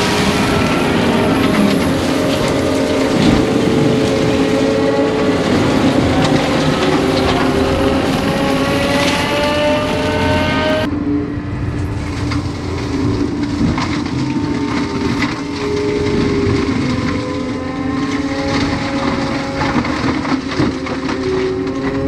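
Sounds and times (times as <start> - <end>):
brush and wood crackling: 0.0 - 10.8, 11.7 - 22.0
forestry mulcher drone and whine: 0.0 - 22.0.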